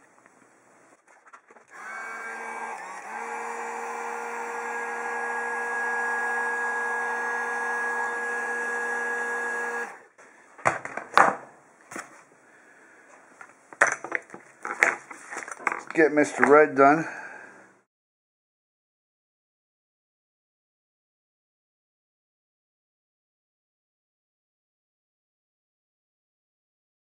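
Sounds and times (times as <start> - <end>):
heat gun fan blowing: 1.8 - 10.1.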